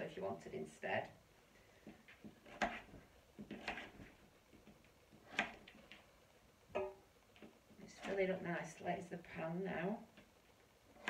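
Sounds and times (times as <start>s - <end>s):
knife chopping on plastic board: 2.4s - 4.1s, 5.2s - 5.7s.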